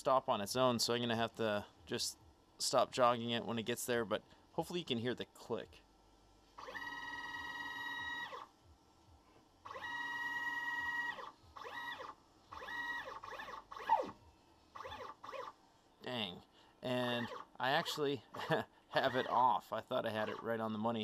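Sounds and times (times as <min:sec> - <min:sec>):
stepper motor whine: 0:06.6 - 0:08.5, 0:09.6 - 0:15.6, 0:17.1 - 0:17.6, 0:18.4 - 0:19.6.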